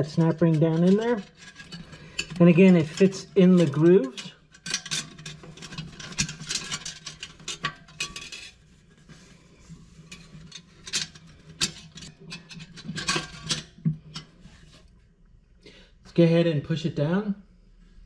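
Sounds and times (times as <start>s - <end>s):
light metal scraping: 0.0s - 15.0s.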